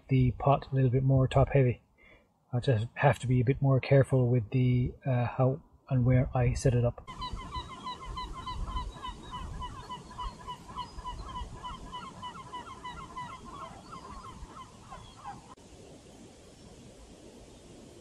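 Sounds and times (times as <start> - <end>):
geese honking: 7.1 - 15.6.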